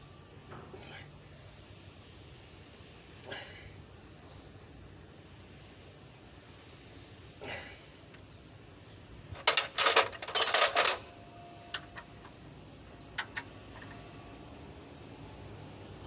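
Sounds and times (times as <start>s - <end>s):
metal hand tools clattering: 9.4s - 12.3s
short metallic ring: 9.4s - 12.3s.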